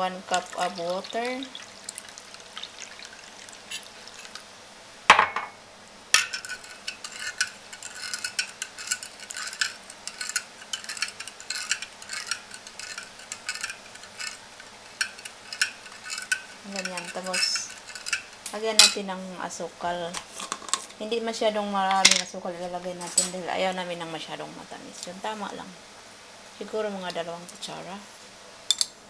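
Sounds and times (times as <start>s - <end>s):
water pouring: 0.2s - 4.5s
metal spoon clinking in bowl: 6.2s - 14.4s, 15.0s - 19.0s.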